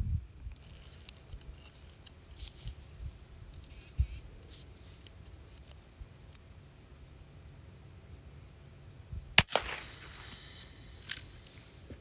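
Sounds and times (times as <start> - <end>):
wind rumble on microphone: 0.0 - 0.6, 9.1 - 10.4
small high-pitched ticks and scratches: 0.5 - 12.0.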